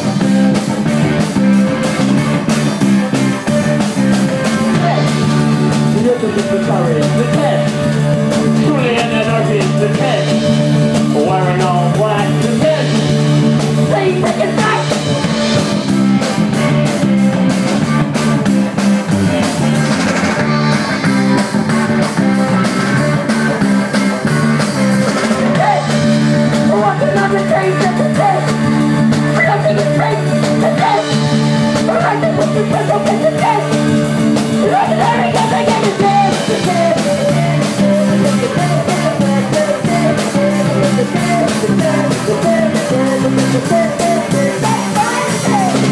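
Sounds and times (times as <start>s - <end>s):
bass line: 0.0s - 45.9s
drum kit: 0.0s - 45.9s
electric guitar: 0.0s - 45.9s
person singing: 4.4s - 18.0s, 25.4s - 33.9s, 34.5s - 45.9s.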